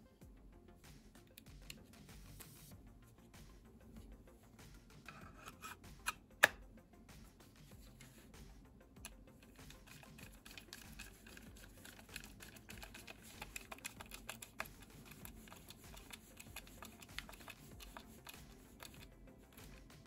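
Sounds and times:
small clicks and taps: 9.0s - 20.0s.

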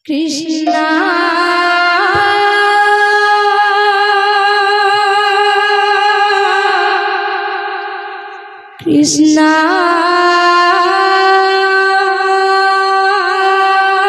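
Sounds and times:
woman singing a long note: 0.4s - 7.1s.

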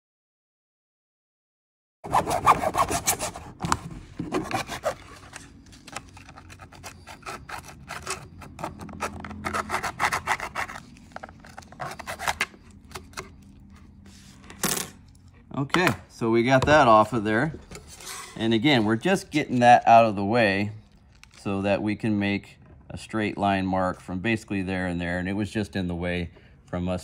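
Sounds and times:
hacksaw sawing plastic: 2.0s - 13.4s.

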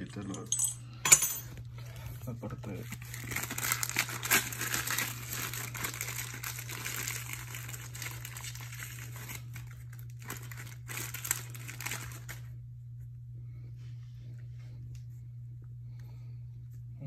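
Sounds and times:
steady low hum: 0.0s - 17.0s
wrapping crinkling and crumpling: 2.5s - 12.6s.

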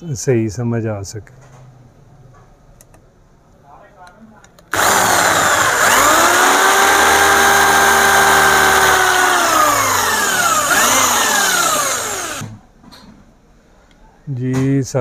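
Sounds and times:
electric drill boring metal: 4.7s - 12.5s.

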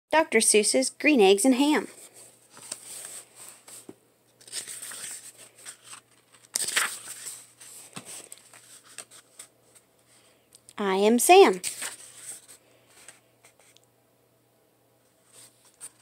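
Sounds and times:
book pages turning: 2.1s - 9.9s, 11.5s - 13.8s, 15.3s - 16.0s.

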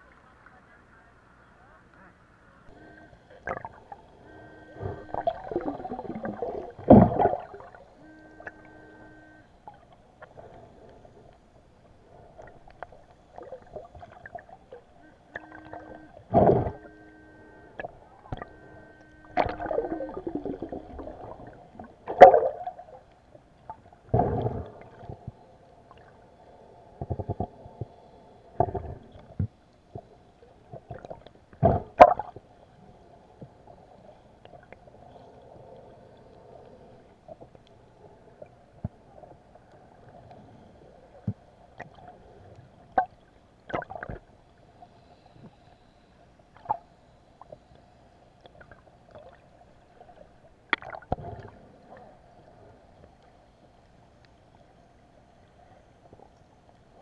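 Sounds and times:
short buzzing tones: 2.7s - 9.6s, 15.0s - 21.5s
muffled underwater water sloshing: 2.7s - 57.0s.

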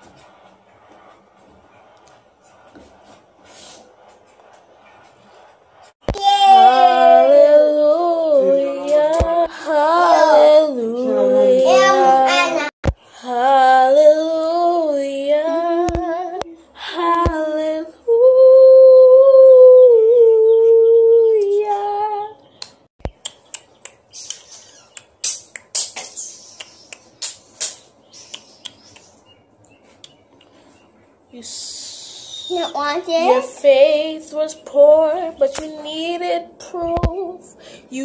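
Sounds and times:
child singing: 6.1s - 22.4s, 32.5s - 38.0s
short sharp clicks: 22.6s - 29.1s.

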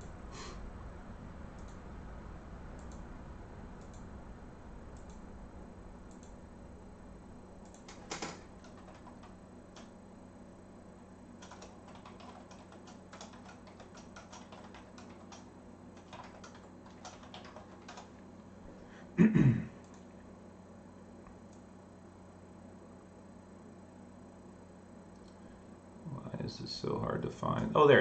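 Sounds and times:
keyboard typing: 7.6s - 9.9s, 11.4s - 18.2s.

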